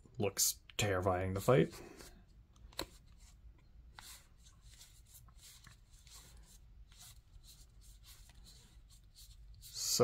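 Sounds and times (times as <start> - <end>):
cards flicking and sliding: 2.0 - 6.4.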